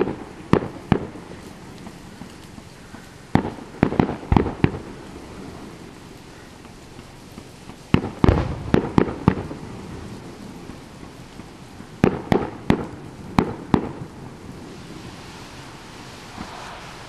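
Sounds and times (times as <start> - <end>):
fireworks bangs: 0.0 - 2.7, 3.3 - 17.0.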